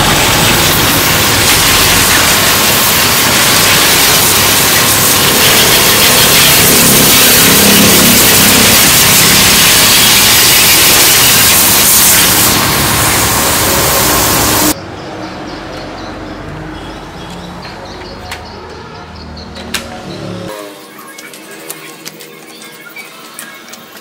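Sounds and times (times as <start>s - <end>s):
pressure washer spray hissing: 0.0s - 14.8s.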